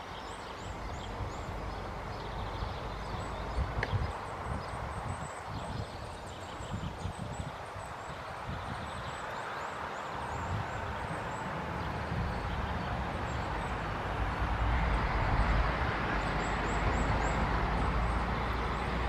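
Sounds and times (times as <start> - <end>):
rushing outdoor noise: 0.0 - 19.0.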